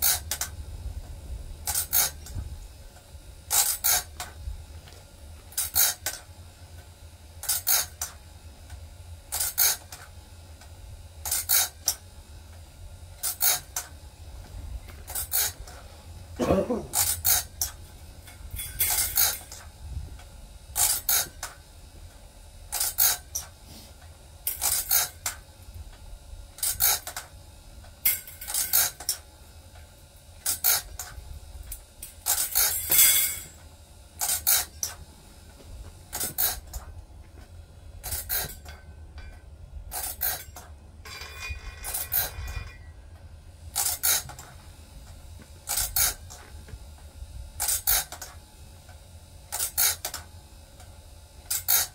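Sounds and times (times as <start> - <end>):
low steady hum: 0.0 - 51.9
grinding wheel scraping saw teeth: 16.9 - 17.7, 18.5 - 19.6, 24.5 - 25.2, 32.2 - 33.6, 34.2 - 34.9, 38.0 - 38.8, 39.9 - 42.9.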